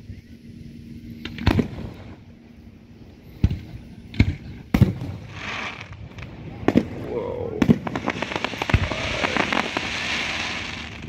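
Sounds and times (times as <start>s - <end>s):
firework hiss: 3.1s - 11.0s
firework bangs: 3.4s - 11.0s.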